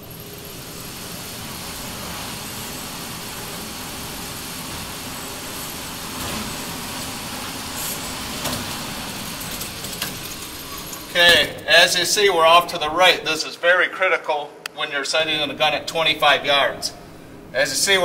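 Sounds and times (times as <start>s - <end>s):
target carrier mechanical whir: 0.0s - 11.7s.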